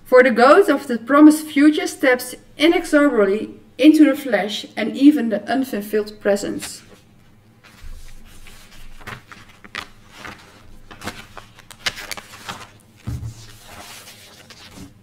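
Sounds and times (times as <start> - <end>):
paper rustling and crackling: 6.6 - 15.0.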